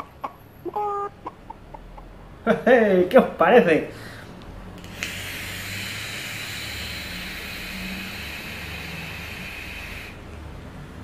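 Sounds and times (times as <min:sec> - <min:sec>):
e-cigarette vapour hiss: 0:04.8 - 0:10.3.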